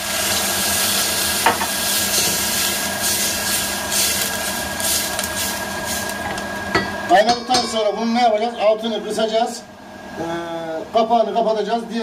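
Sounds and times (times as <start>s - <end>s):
food hissing and sizzling in pot: 0.0s - 7.1s
spoon knocking on pot: 6.7s - 7.9s.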